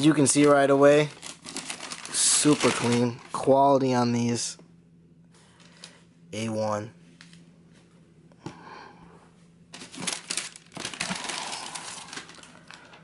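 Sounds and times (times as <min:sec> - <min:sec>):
tissue paper crinkling: 0:00.1 - 0:03.5, 0:09.7 - 0:12.9.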